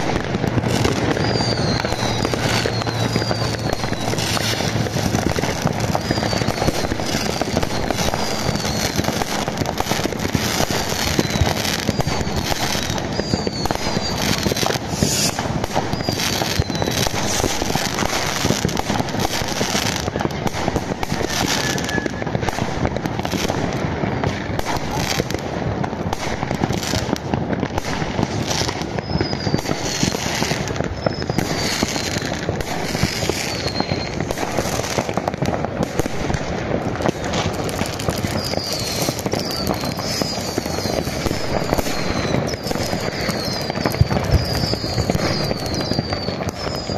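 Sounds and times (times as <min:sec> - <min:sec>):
fireworks crackling and banging: 0:00.0 - 0:46.9
falling whistles: 0:00.6 - 0:09.2, 0:10.6 - 0:18.6, 0:21.1 - 0:22.2, 0:28.7 - 0:34.9, 0:38.2 - 0:46.9.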